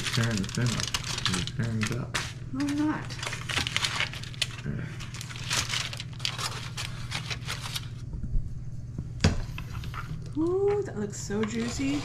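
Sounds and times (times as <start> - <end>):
aluminium foil crinkling: 0.0 - 8.1
steady low hum: 0.0 - 12.0
spatula scraping pan: 11.3 - 12.0.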